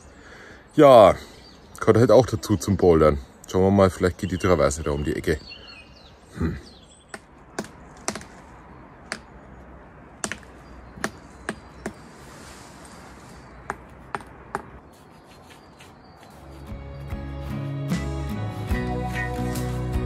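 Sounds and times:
faint steady background noise: 0.0s - 16.6s
sharp taps and clicks: 9.0s - 9.3s, 13.7s - 14.8s
music: 16.4s - 20.0s.

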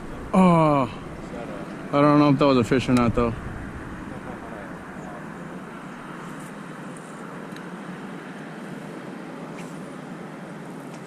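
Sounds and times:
wind rushing over microphone: 0.0s - 6.3s.

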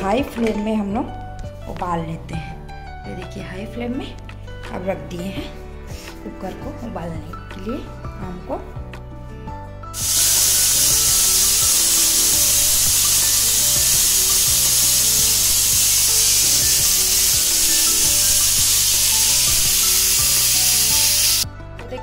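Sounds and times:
pressure cooker steam hissing: 10.0s - 21.4s.

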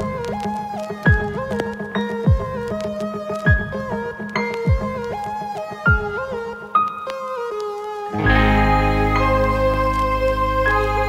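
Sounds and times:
held synth chords: 8.0s - 11.0s.

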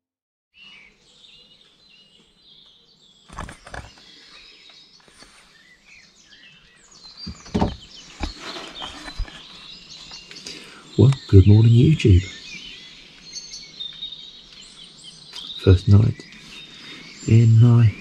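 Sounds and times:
small birds chirping and trilling: 0.6s - 18.0s
short knocks: 7.2s - 8.4s.

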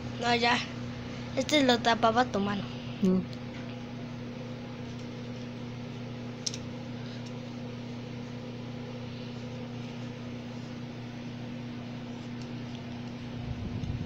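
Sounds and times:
electric fan humming: 0.0s - 14.0s.

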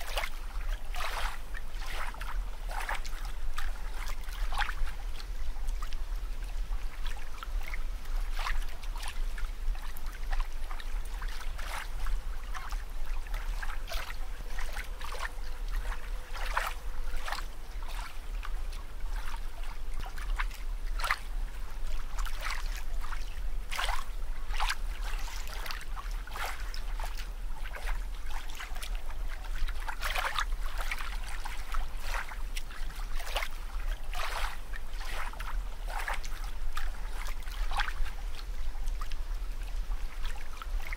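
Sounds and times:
steady low rumble: 0.0s - 40.9s
water bubbling and splashing: 0.0s - 40.9s.

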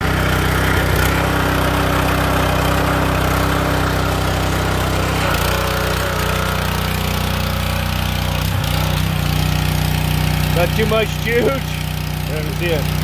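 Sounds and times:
pressure washer engine running: 0.0s - 13.0s.

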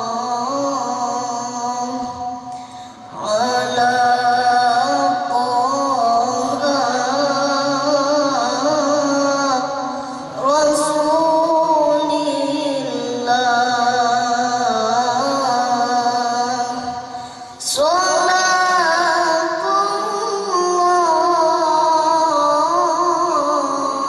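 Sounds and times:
boy chanting recitation: 0.0s - 24.0s.

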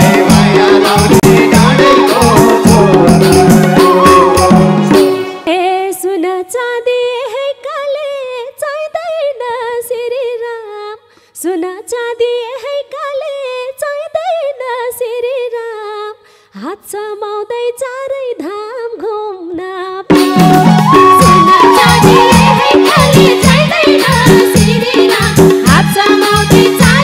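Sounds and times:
woman singing into microphone: 0.0s - 27.0s.

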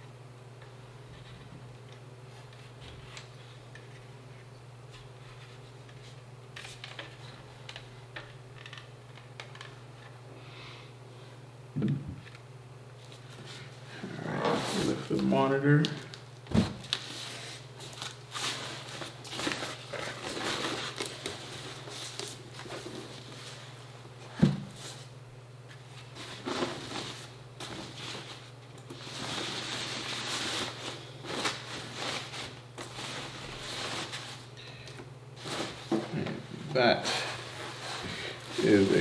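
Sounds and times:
plastic bag crinkling: 15.8s - 23.5s, 26.2s - 34.6s, 37.4s - 39.0s.

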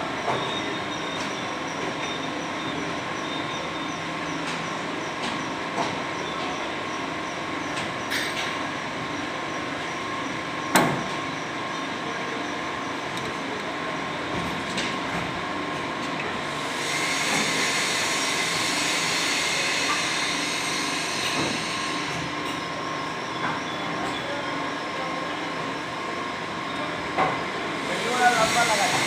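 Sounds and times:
loud hissy noise: 16.4s - 22.4s, 27.5s - 29.0s.

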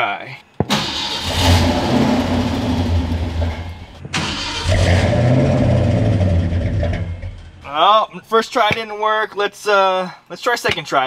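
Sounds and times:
car engine cranking: 0.7s - 7.7s.

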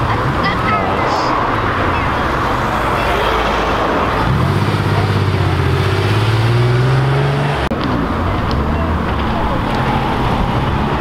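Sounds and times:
car engine pulling away: 2.1s - 11.0s.

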